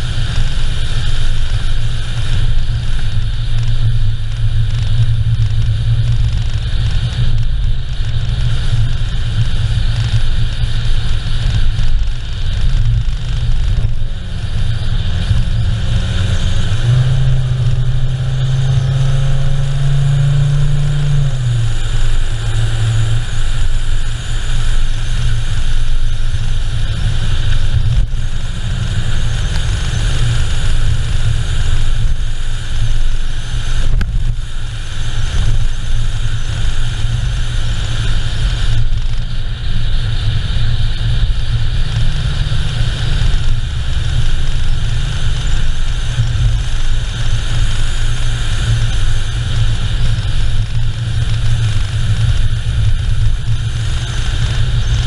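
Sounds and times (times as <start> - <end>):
car engine and tyres rumbling: 0.0 - 55.0
air rushing past: 11.0 - 31.7.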